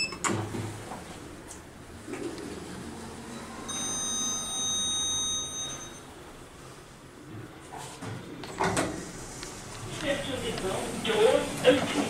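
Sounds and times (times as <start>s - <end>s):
high-pitched whine of doors opening: 3.2s - 6.2s.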